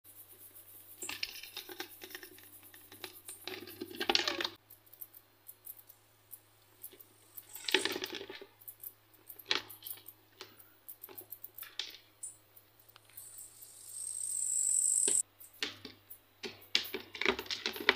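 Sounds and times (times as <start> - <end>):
clicking and scraping on plastic: 15.6 - 17.9.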